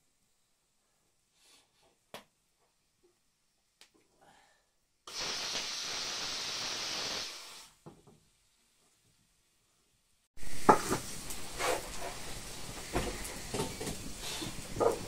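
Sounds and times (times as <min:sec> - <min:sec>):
cooking pot hissing: 0:05.1 - 0:07.9, 0:10.4 - 0:15.0.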